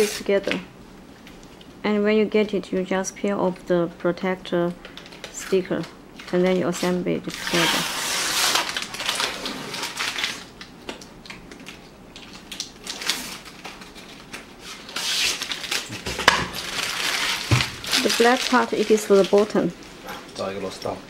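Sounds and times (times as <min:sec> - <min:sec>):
paper backing crackling and rustling: 0:04.9 - 0:21.0.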